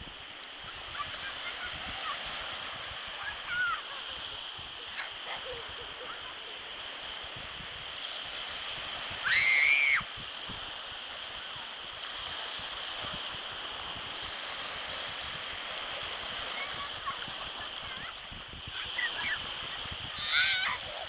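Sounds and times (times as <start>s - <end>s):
small waves washing ashore: 0.0s - 21.0s
child squealing: 9.2s - 10.0s, 20.2s - 20.9s.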